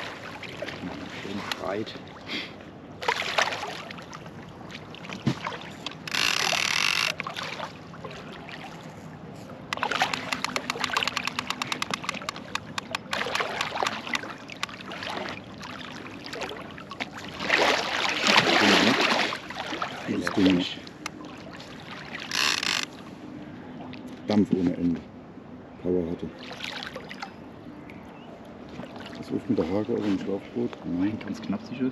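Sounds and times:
fish thrashing and splashing: 3.0 - 23.0
fishing reel clicking: 6.0 - 7.2, 9.7 - 13.9, 22.3 - 22.9.

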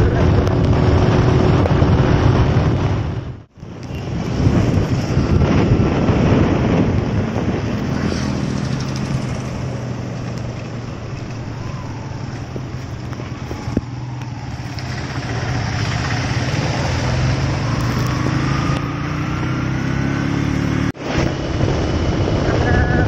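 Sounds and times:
motorcycle engine hum: 0.0 - 23.0
wind and road noise: 0.0 - 23.0.

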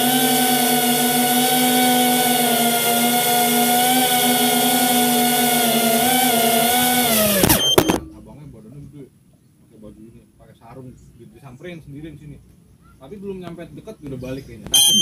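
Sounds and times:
drone propellers whining: 0.0 - 8.1.

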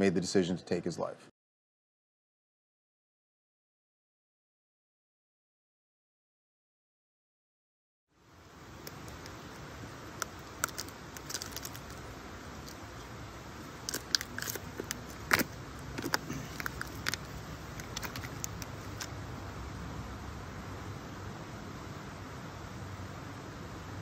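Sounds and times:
low outdoor hiss: 0.0 - 1.3, 8.1 - 24.0
footsteps on leafy stone steps: 13.9 - 19.1.

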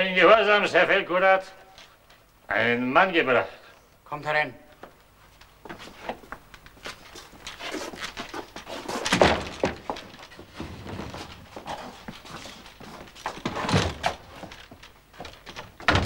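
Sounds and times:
scuffling footsteps: 4.8 - 16.0.

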